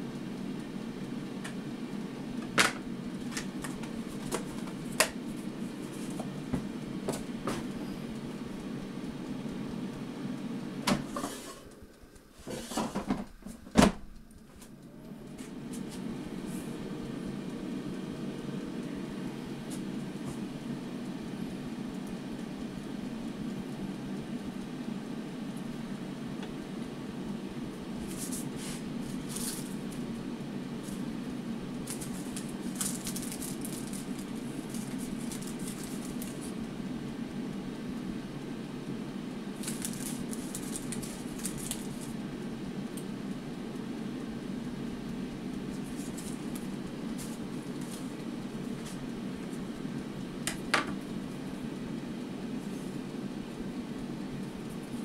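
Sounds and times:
steady low hum: 0.0s - 55.0s
paper cases crinkling: 31.8s - 36.5s, 39.6s - 42.2s, 45.8s - 48.1s.

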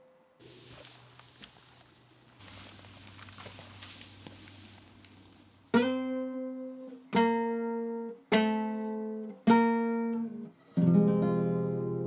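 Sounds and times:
acoustic guitar strummed chords: 5.7s - 12.0s.

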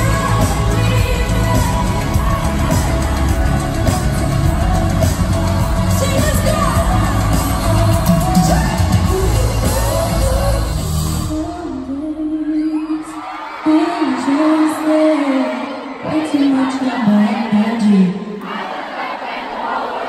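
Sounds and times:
pop backing track with heavy bass: 0.0s - 12.3s
person singing: 0.0s - 15.5s.

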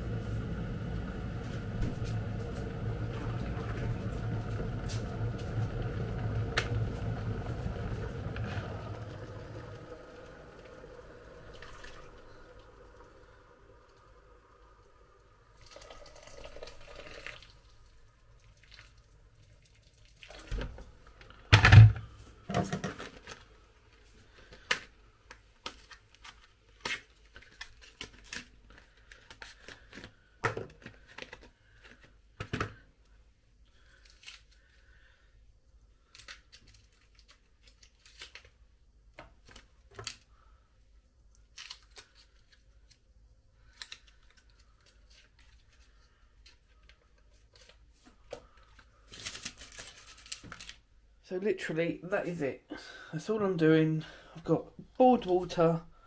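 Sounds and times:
packaging crinkling and rustling: 24.4s - 32.2s, 36.0s - 40.4s, 41.3s - 51.0s.

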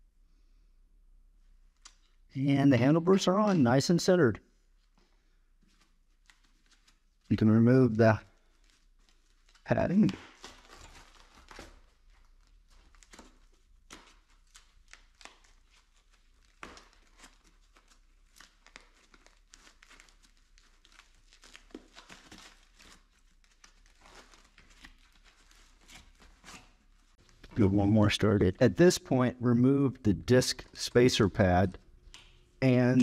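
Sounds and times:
packing padding crinkling and tearing: 5.6s - 7.3s, 8.2s - 27.6s.

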